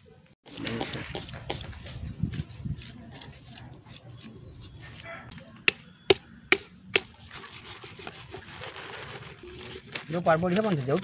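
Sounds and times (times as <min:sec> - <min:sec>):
scraping and rustling: 0:07.2 - 0:11.0.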